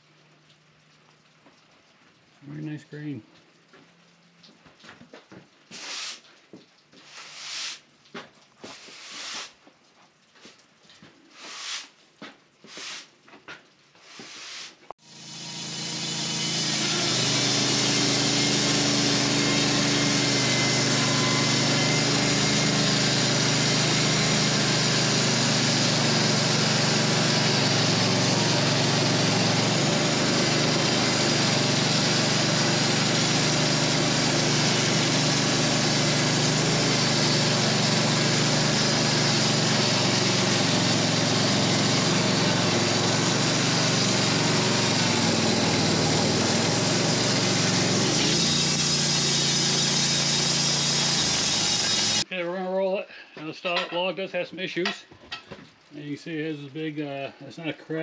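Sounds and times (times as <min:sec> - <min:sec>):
band saw blade sawing log: 0:05.7 - 0:06.3, 0:07.0 - 0:07.9, 0:08.6 - 0:09.6, 0:11.3 - 0:12.0, 0:12.6 - 0:13.1, 0:14.0 - 0:52.3
band sawmill engine hum: 0:14.2 - 0:52.3.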